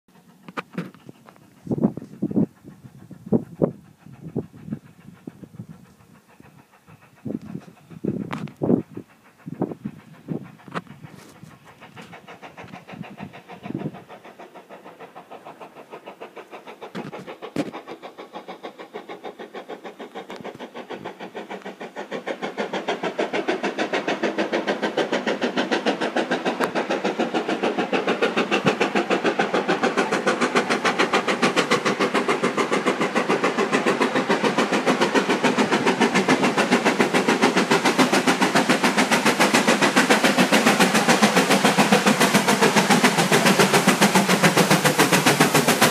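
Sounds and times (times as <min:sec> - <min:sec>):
steam locomotive chuffing: 0:00.1 - 0:45.9.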